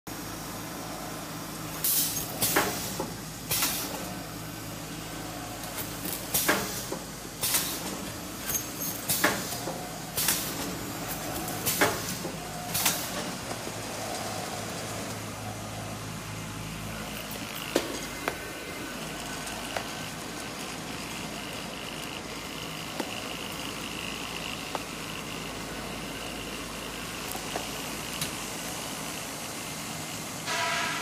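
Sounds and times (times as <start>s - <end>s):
packaging machine motor hum: 0.1s - 30.4s.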